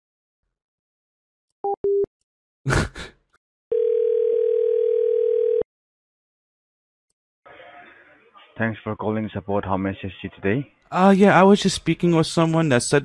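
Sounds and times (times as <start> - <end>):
telephone ringback tone: 3.7 - 5.6.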